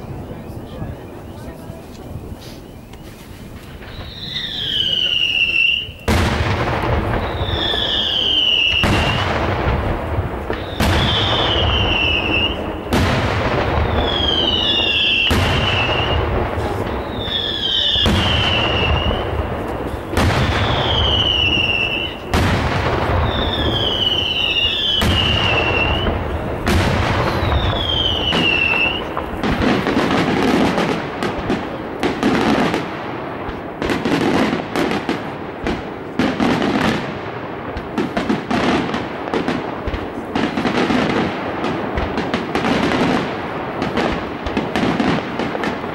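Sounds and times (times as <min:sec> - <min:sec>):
fireworks bursting in loud bangs: 0:00.0 - 0:45.9
fireworks crackling: 0:00.0 - 0:45.9.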